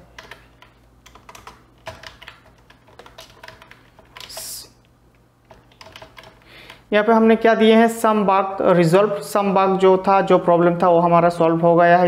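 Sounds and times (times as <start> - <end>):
typing on computer keyboard: 0.0 - 4.7, 5.5 - 6.8.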